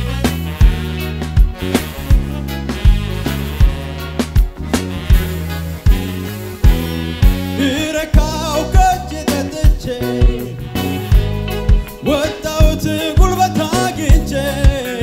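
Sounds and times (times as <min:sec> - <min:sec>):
bass: 0:00.0 - 0:15.0
electric guitar: 0:00.0 - 0:15.0
man singing: 0:07.5 - 0:11.2, 0:11.8 - 0:15.0.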